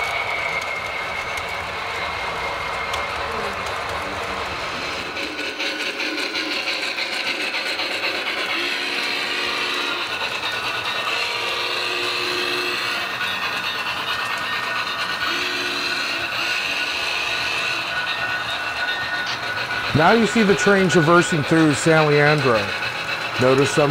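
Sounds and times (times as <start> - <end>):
model train mechanical whir: 0.0 - 23.9.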